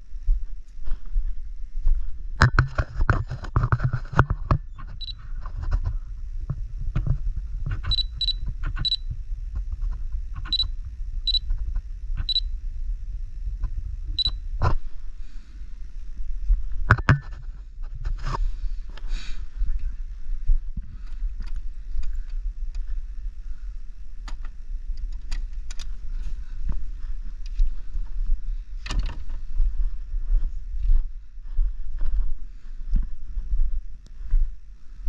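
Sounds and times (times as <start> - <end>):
steady low rumble: 0.0 - 35.0
short high beeps: 7.9 - 9.1.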